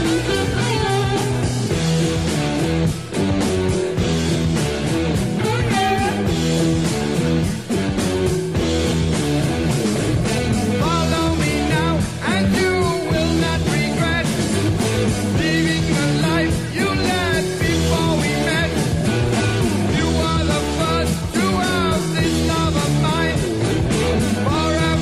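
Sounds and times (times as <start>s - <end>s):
person singing: 0.0s - 1.8s, 5.3s - 6.4s, 10.7s - 25.0s
rock guitar with steady beat: 0.0s - 25.0s.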